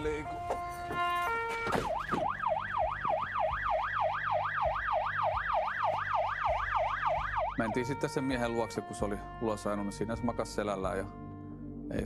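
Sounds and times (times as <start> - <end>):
electronic siren yelping: 0.0 - 8.8.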